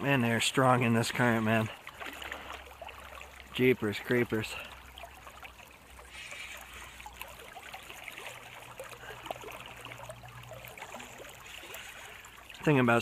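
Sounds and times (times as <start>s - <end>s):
river current rushing: 0.0s - 13.0s.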